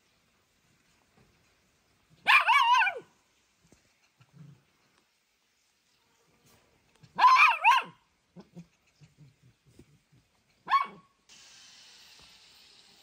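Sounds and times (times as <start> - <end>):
faint steady hiss: 0.0 - 13.0
small dog yipping: 2.2 - 3.1, 7.1 - 8.6, 10.6 - 11.1.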